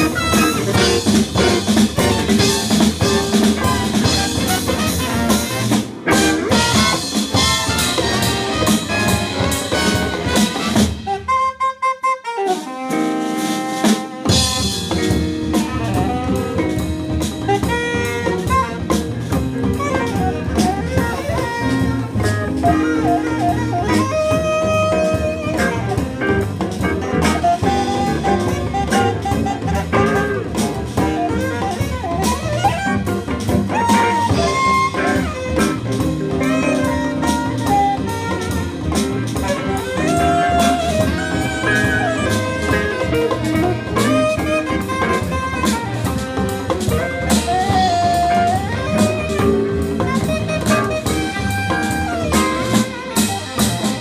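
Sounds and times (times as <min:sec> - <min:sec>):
double bass: 0:00.0 - 0:11.1, 0:14.3 - 0:54.0
saxophones: 0:00.0 - 0:19.1, 0:33.7 - 0:54.0
drum kit: 0:00.0 - 0:54.0
electric guitar: 0:00.0 - 0:54.0.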